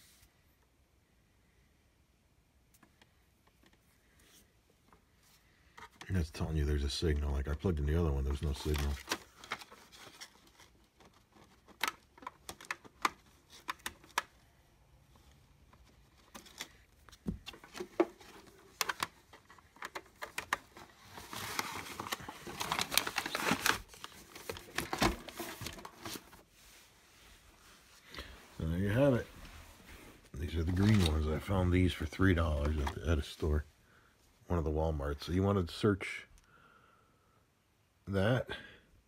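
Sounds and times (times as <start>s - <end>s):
cable rustling: 8.2s - 33.6s.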